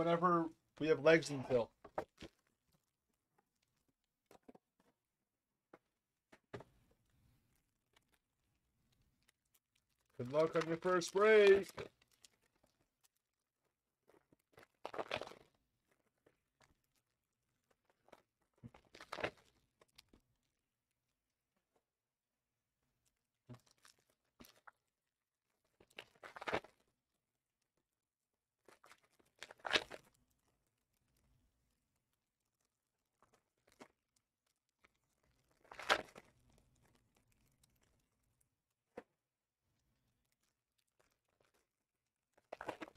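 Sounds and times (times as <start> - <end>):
foil wrapper crinkling: 9.2 - 20.0
foil wrappers crinkling: 10.0 - 12.8.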